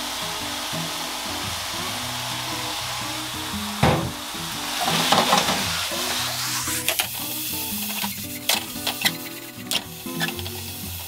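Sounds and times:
mushrooms sizzling in a frying pan: 0.0s - 11.0s
sharp knock: 3.8s - 4.2s.

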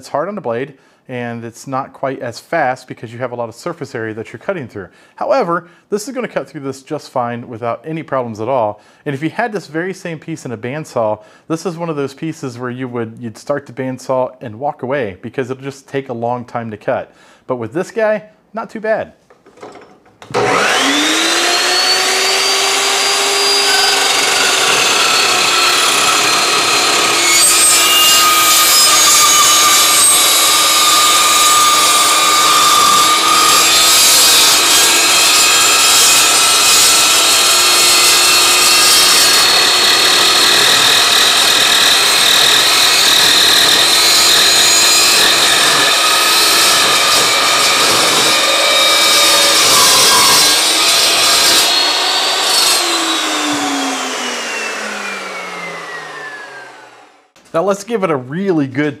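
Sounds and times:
saw blade cutting steel tubing: 20.2s - 56.4s
chop saw motor whine: 20.2s - 57.3s.

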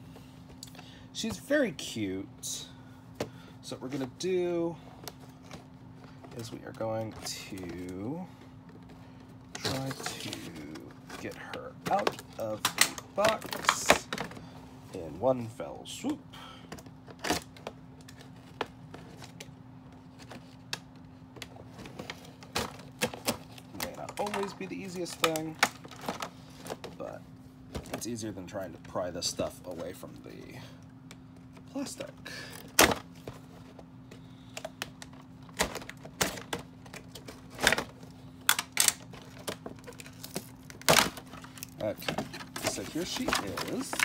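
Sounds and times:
cardboard and plastic scraping: 8.8s - 15.1s, 21.4s - 28.2s, 38.8s - 44.0s
doll box being handled: 39.0s - 44.0s.

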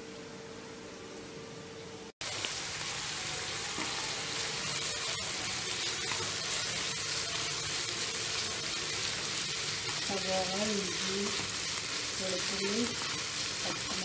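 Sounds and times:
vegetables sizzling in hot oil: 2.2s - 14.0s.

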